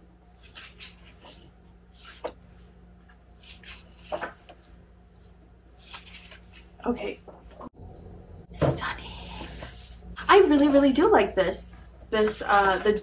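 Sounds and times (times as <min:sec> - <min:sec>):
faint steady hum: 0:00.0 - 0:13.0
photobook pages turning: 0:00.3 - 0:04.8, 0:05.7 - 0:06.8, 0:12.2 - 0:13.0.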